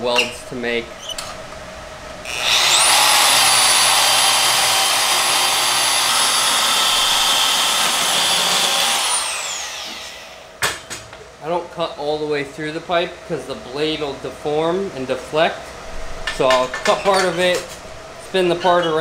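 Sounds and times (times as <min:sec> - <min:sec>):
band saw cutting metal: 0:02.3 - 0:10.5.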